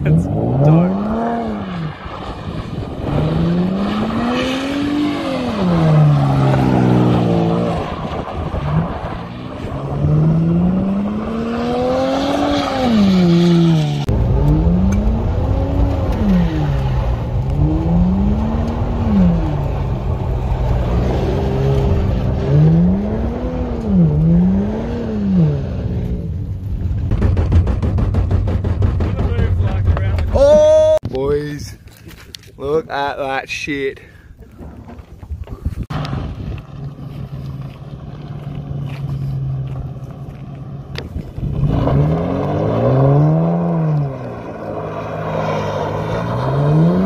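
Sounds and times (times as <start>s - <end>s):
car engine revving: 0.0s - 30.3s, 35.9s - 47.0s.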